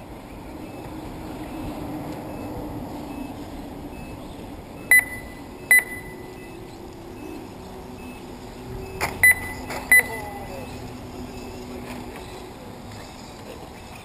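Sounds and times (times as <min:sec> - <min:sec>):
steady background noise: 0:00.0 - 0:14.0
short electronic beeps: 0:03.1 - 0:04.2, 0:04.8 - 0:11.6.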